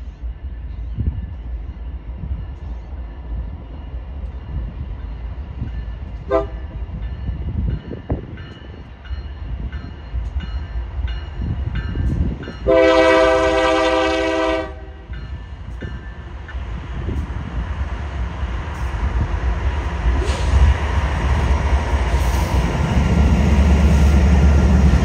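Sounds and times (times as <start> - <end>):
diesel locomotive engine rumble: 0.0 - 25.0
train air horn: 6.3 - 6.7, 12.6 - 15.1.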